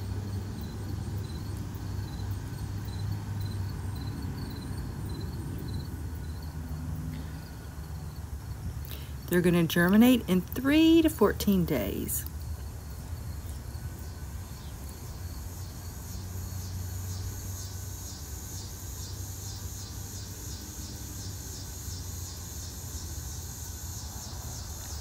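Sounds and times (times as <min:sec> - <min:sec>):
insects chirping: 0:00.0 - 0:25.0.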